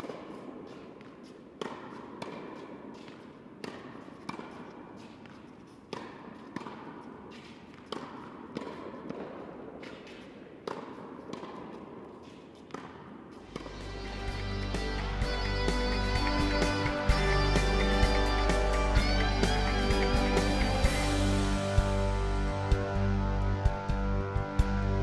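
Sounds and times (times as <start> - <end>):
tennis ball hits and bounces: 0.0 - 18.2.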